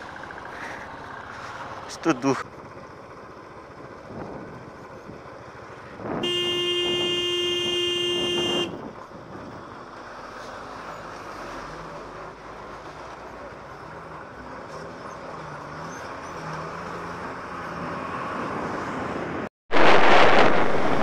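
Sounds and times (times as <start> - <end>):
wind and road noise: 0.0 - 21.0
vehicle horn steady note: 6.2 - 8.8.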